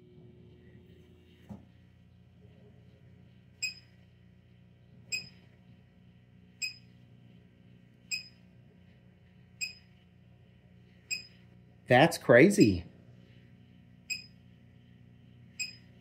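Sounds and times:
microwave humming: 0:00.0 - 0:16.0
short high warning beeps: 0:03.6 - 0:03.9, 0:05.1 - 0:05.3, 0:08.1 - 0:08.3, 0:09.6 - 0:09.8, 0:11.1 - 0:11.3, 0:14.1 - 0:14.3.

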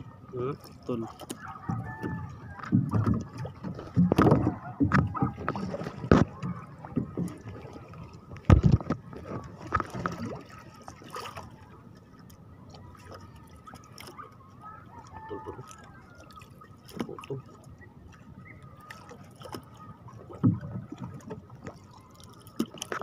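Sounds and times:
water splashing and dripping: 0:00.0 - 0:23.0
sharp knocks on boat: 0:01.3 - 0:07.5, 0:08.4 - 0:10.4, 0:20.3 - 0:21.4.

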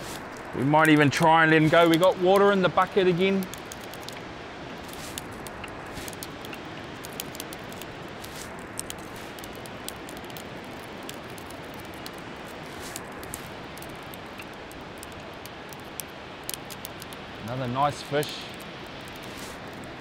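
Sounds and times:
faint ticks: 0:04.9 - 0:12.2, 0:12.9 - 0:17.2.

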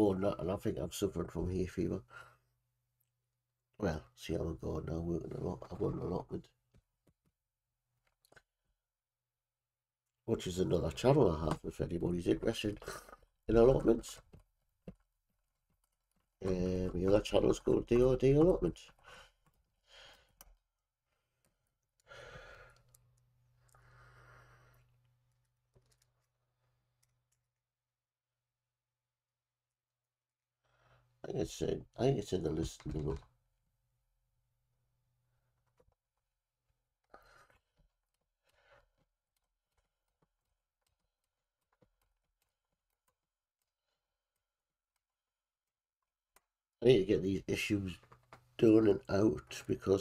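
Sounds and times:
faint clicks of plastic parts: 0:05.2 - 0:08.9, 0:10.0 - 0:27.6, 0:31.8 - 0:33.5, 0:35.0 - 0:46.7, 0:47.4 - 0:50.0
soft sighing breaths: 0:22.0 - 0:23.0, 0:23.6 - 0:25.0.

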